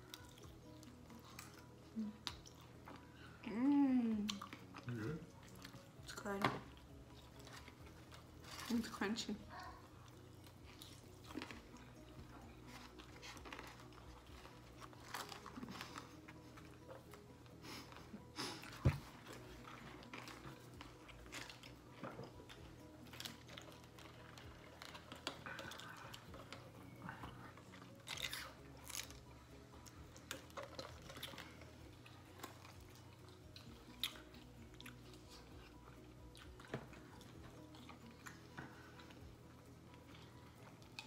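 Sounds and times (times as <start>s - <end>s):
chewing crunchy chicken wings: 19.4s - 29.2s.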